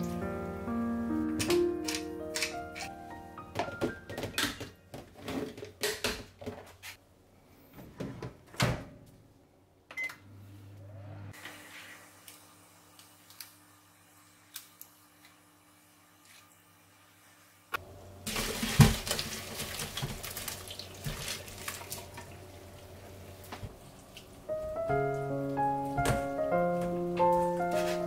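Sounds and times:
microwave humming: 17.8 - 19.4.

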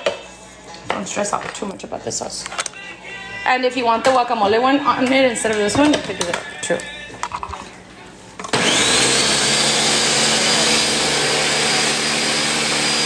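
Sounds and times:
blender motor whining: 8.5 - 13.0.

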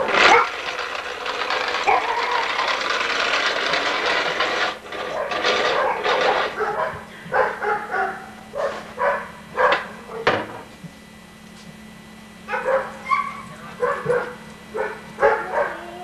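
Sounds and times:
dog barking: 5.2 - 10.3, 12.5 - 16.0.

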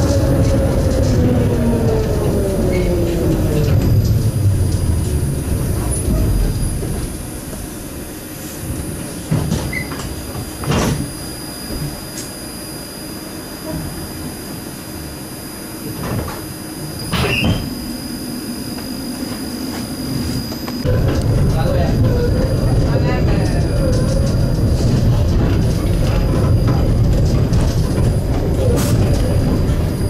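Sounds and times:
tram humming: 0.0 - 30.0
tram rumbling: 0.0 - 30.0.

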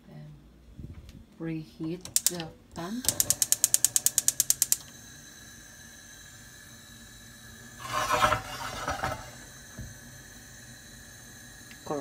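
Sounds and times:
gas burner hissing: 2.1 - 12.0
rustling scraping noise: 7.8 - 9.4.

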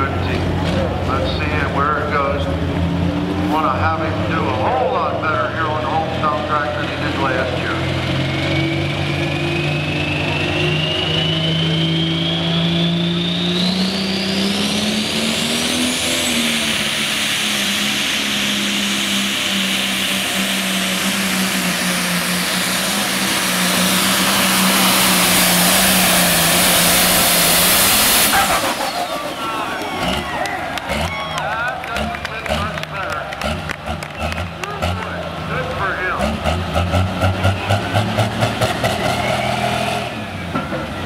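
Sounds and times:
diesel tractor engine revving: 0.0 - 41.0
turbocharger whistle: 7.1 - 33.2, 34.0 - 36.2, 37.2 - 40.6.

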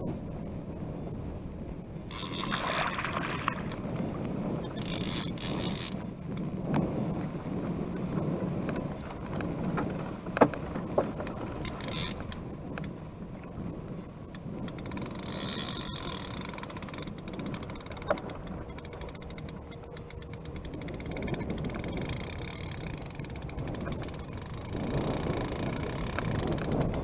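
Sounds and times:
water washing against boat hull: 2.1 - 27.0.

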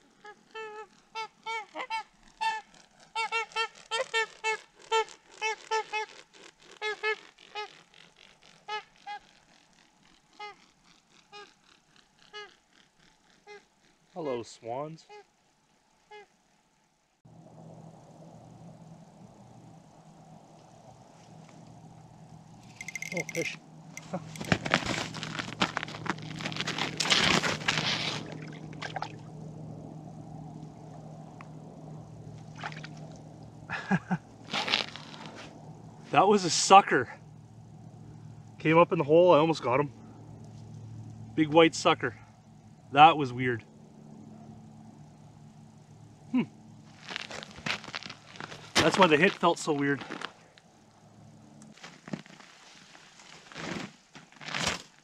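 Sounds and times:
swans calling: 0.0 - 6.2
faint low hum: 0.0 - 55.0
water splashing and sloshing: 24.4 - 29.4, 32.4 - 33.6.

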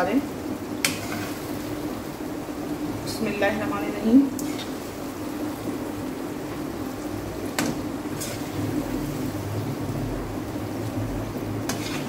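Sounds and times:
low kitchen hum: 0.0 - 12.0
spoon scraping pan: 0.8 - 1.5, 8.1 - 8.6, 11.6 - 12.0.

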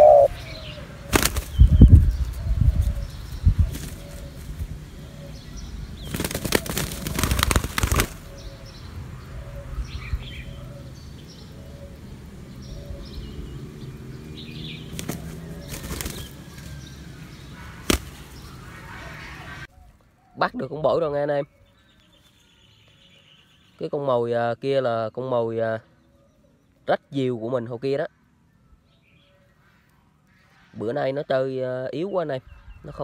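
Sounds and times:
small birds chirping faintly: 0.0 - 33.0
dove wings flapping: 1.1 - 3.0, 3.6 - 4.7, 6.0 - 8.4, 14.9 - 16.9, 17.7 - 18.5.

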